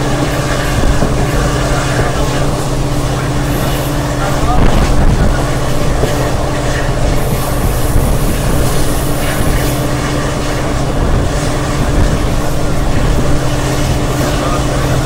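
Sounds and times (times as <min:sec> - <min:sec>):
diesel engine droning: 0:00.0 - 0:15.0
train running noise: 0:00.0 - 0:15.0.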